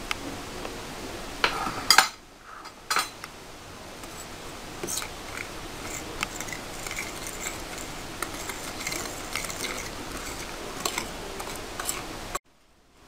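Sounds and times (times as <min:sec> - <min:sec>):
fork scraping a ceramic plate: 0:04.0 - 0:12.4.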